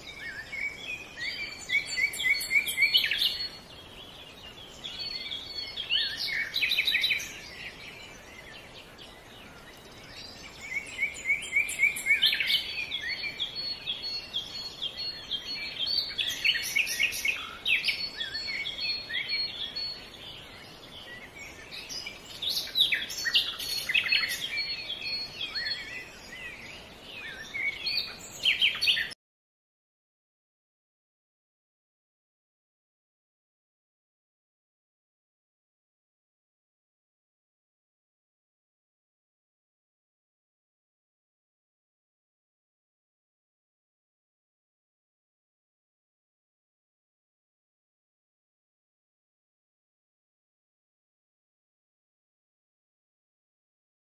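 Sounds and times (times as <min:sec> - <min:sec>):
songbirds chirping and trilling: 0:00.0 - 0:29.2.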